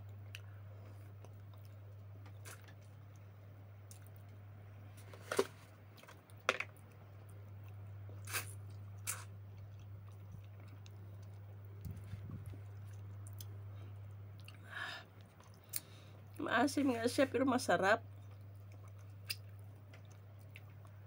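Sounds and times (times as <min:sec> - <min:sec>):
steady low hum: 0:00.0 - 0:21.0
person chewing and biting: 0:07.2 - 0:13.6.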